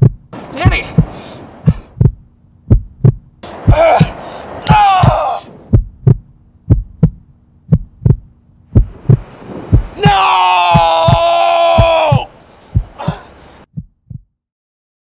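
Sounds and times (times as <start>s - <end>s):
heartbeat thumps: 0.0s - 4.2s, 5.0s - 14.4s
long wailing cry: 10.0s - 12.4s.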